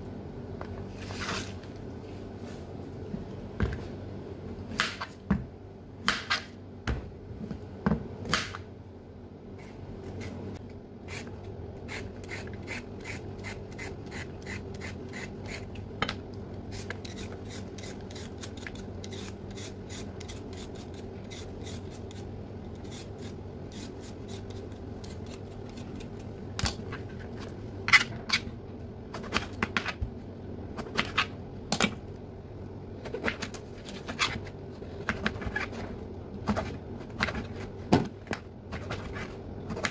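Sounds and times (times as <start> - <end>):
faint steady hum: 0.0 - 39.9
peeler scraping potato: 11.0 - 15.8, 16.7 - 26.4.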